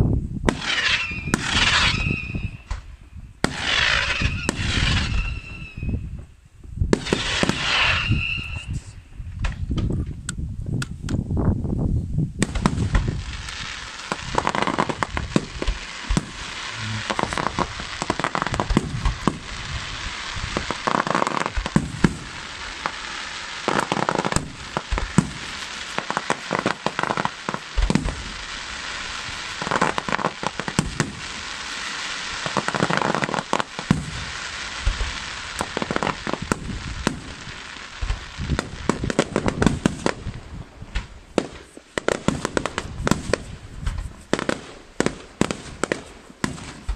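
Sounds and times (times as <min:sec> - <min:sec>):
dense firework crackling: 0:00.0 - 0:09.7, 0:12.4 - 0:46.9
firework shells bursting: 0:12.4 - 0:46.9.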